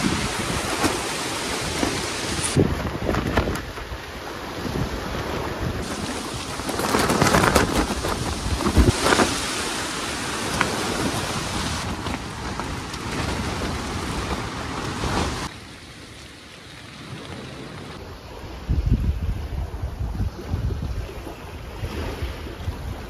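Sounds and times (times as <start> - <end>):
strong wind buffeting microphone: 0.0 - 15.5, 17.8 - 23.0.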